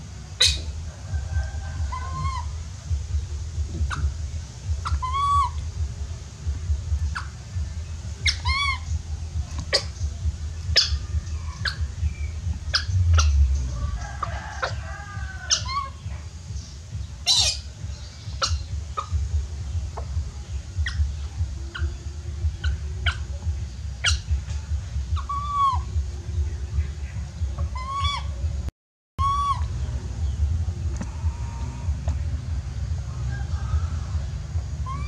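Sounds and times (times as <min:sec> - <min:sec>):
steady low rumble: 0:00.0 - 0:35.0
monkey squealing: 0:00.4 - 0:00.7, 0:01.9 - 0:02.6, 0:03.8 - 0:04.2, 0:04.8 - 0:05.6, 0:08.2 - 0:09.0, 0:09.7 - 0:10.0, 0:10.7 - 0:11.9, 0:12.7 - 0:13.4, 0:15.5 - 0:16.0, 0:17.2 - 0:17.7, 0:18.4 - 0:19.2, 0:24.0 - 0:24.3, 0:25.1 - 0:26.0, 0:27.7 - 0:28.4, 0:29.2 - 0:29.7
monkey chirping: 0:00.4 - 0:00.8, 0:01.8 - 0:03.0, 0:03.6 - 0:05.9, 0:07.0 - 0:07.6, 0:08.2 - 0:13.6, 0:15.5 - 0:16.1, 0:17.2 - 0:26.1, 0:27.6 - 0:28.4, 0:29.2 - 0:29.7, 0:34.8 - 0:35.0.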